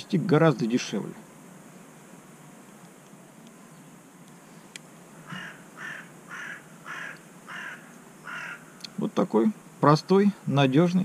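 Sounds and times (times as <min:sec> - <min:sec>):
crow cawing: 0:05.2 - 0:09.0.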